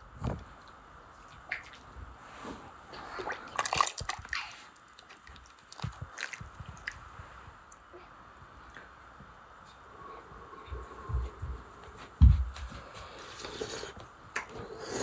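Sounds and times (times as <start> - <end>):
liquid splashing and dripping: 3.2 - 7.0.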